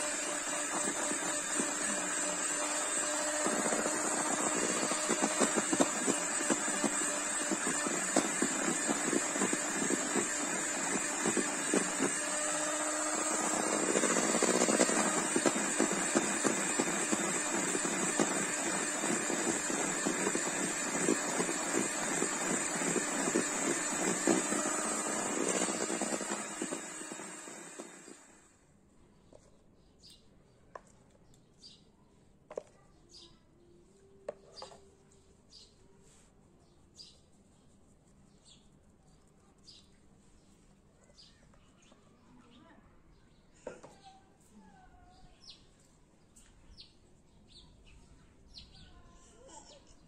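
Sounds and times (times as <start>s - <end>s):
electric mixer whisking batter: 0.0s - 28.5s.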